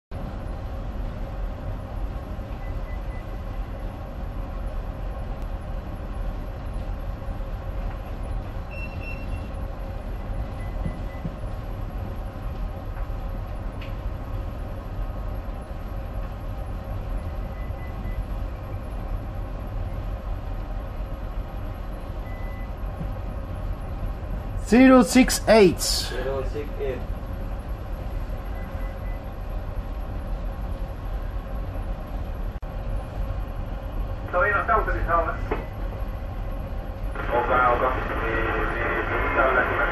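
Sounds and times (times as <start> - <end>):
low machinery drone: 0.1 - 39.9
faint short electronic beeps: 8.7 - 9.6.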